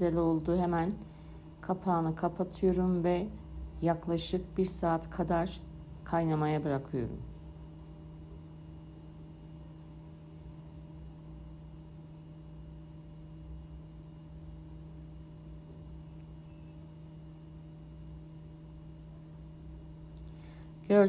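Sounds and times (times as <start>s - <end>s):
steady low hum: 0.0s - 21.0s
faint higher tones: 16.0s - 16.9s.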